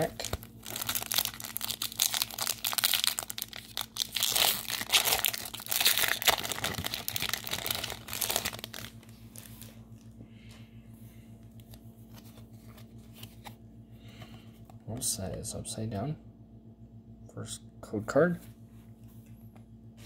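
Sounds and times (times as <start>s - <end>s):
foil wrapper crinkling and tearing: 0.0s - 9.8s
handling of cards: 0.0s - 10.1s, 11.4s - 13.6s
faint low hum: 0.0s - 20.0s.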